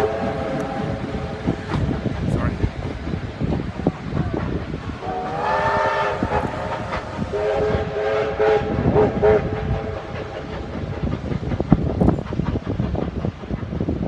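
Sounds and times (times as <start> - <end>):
steam locomotive whistle: 0.0 - 1.5, 5.0 - 10.4
train carriages rumbling on rails: 0.0 - 14.0.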